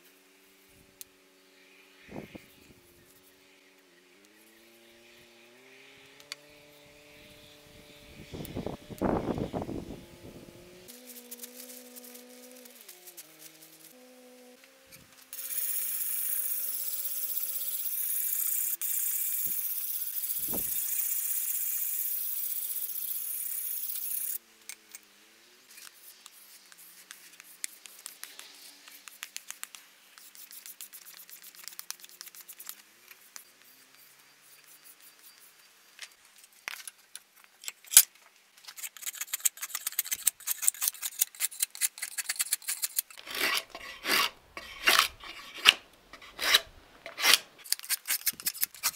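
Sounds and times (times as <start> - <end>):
drawknife shaving wood: 10.9 - 14.0, 25.7 - 35.5, 38.7 - 48.9
blade sharpening strokes: 15.3 - 24.4, 38.8 - 48.9.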